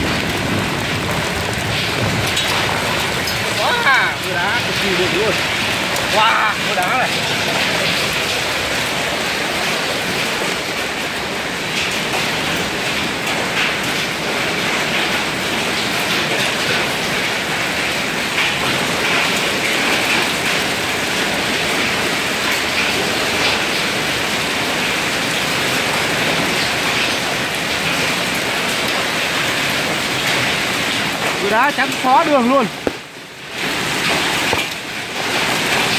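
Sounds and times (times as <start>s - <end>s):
heavy rain and hail on pavement: 0.0s - 35.9s.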